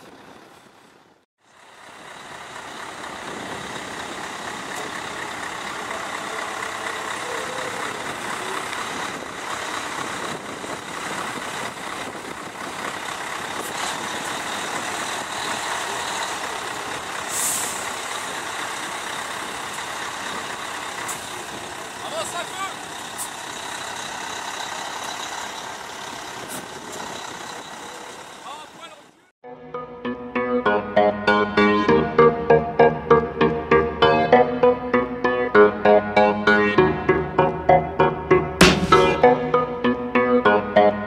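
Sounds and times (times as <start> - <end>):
heavy truck engines and traffic: 0.0 - 29.3, 30.6 - 41.0
air brake hiss: 17.3 - 17.9.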